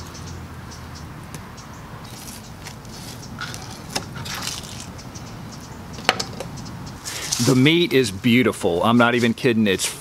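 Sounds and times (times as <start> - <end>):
knife scraping and cutting fish: 2.1 - 4.9.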